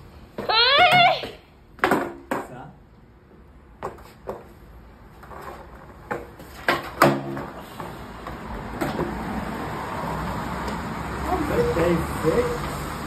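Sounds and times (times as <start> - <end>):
skateboard clacking on concrete: 5.2 - 9.2.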